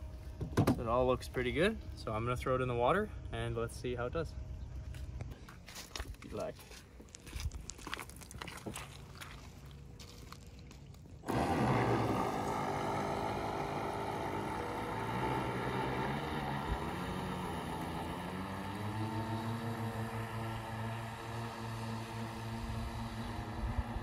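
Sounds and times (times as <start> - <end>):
boat motors whining: 11.2 - 24.0.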